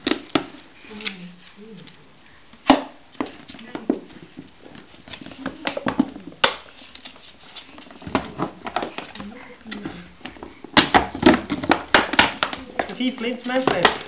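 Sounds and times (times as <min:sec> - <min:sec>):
plastic bottle crinkling and knocking: 0:02.7 - 0:14.0.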